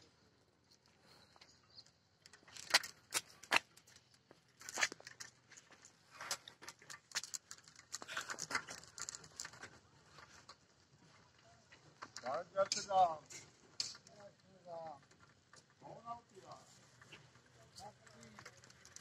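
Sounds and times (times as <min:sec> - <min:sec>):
faint footsteps on pavement: 0:02.8 - 0:08.2.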